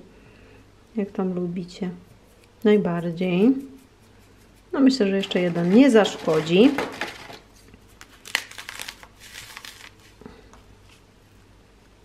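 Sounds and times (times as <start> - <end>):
meringue cookies crunching: 4.6 - 10.3.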